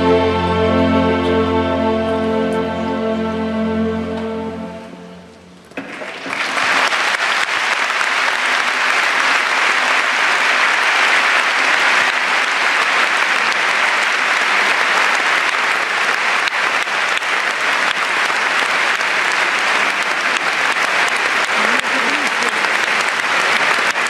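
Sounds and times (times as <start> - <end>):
audience applauding: 5.8 - 24.0.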